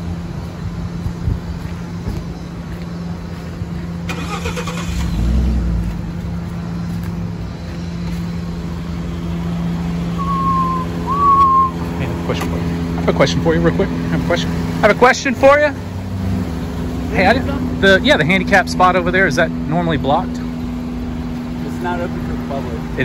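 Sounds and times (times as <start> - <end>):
pickup truck idling: 2.7 - 23.0
short whistling tones: 10.1 - 11.9.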